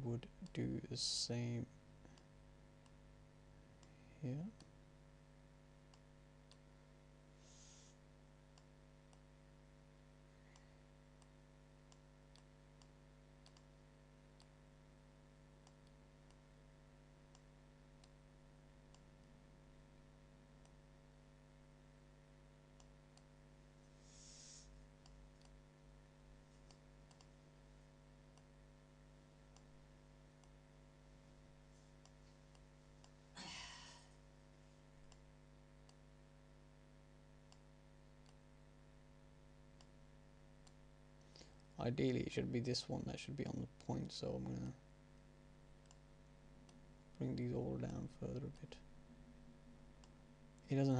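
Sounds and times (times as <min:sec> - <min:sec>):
low electrical hum: 0:00.0 - 0:50.9
computer mouse clicks: 0:11.9 - 0:13.8, 0:26.6 - 0:27.4, 0:45.8 - 0:46.0.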